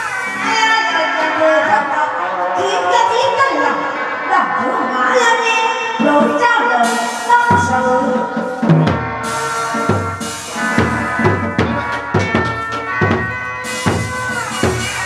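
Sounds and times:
drums playing steady rhythm: 0:05.9 - 0:15.0.

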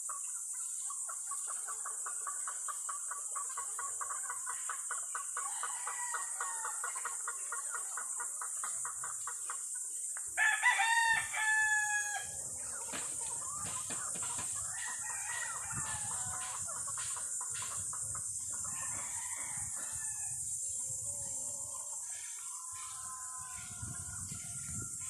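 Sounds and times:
faint roosters crowing: 0:05.3 - 0:07.3, 0:10.4 - 0:25.0
rooster crowing loudly: 0:05.5 - 0:06.8, 0:10.4 - 0:12.4, 0:14.7 - 0:16.6, 0:18.7 - 0:20.4.

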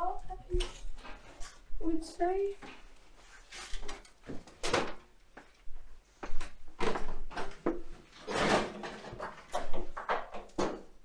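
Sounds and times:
scrapes and knocks: 0:07.3 - 0:10.9.

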